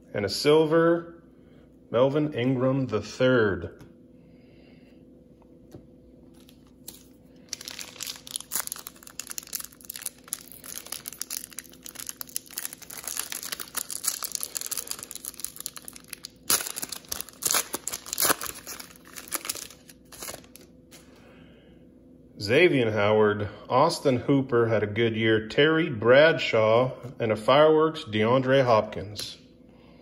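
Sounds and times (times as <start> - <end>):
card pack wrapper crinkling: 6.3 - 21.0.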